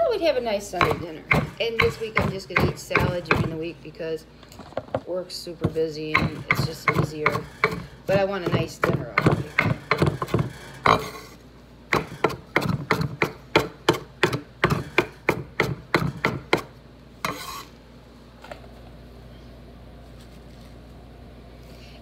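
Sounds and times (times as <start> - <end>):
knife chopping on wooden board: 0.8 - 3.6, 5.6 - 11.1, 11.9 - 16.7
knife scrape on board: 17.2 - 17.8.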